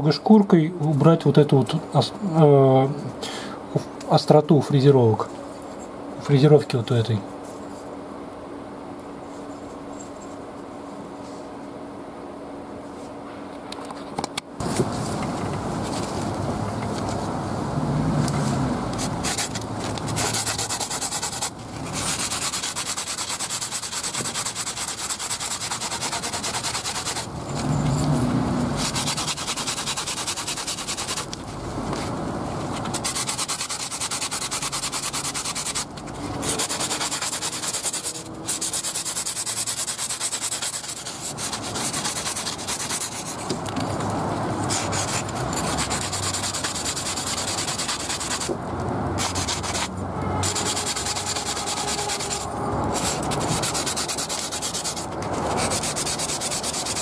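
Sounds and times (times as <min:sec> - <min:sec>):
sanding sponge scratching: 0:18.9 - 0:27.3, 0:28.7 - 0:31.4, 0:32.8 - 0:43.5, 0:44.6 - 0:48.5, 0:49.2 - 0:57.0.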